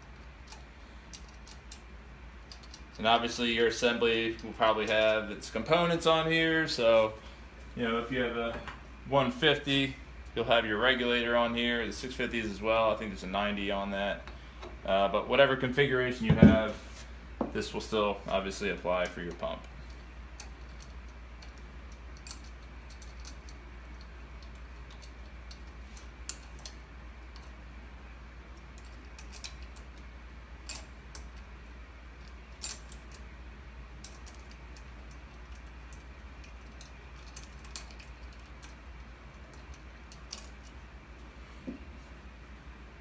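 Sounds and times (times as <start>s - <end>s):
steady low hum: 0.0s - 43.0s
hex key clicking in bolts: 34.0s - 38.8s.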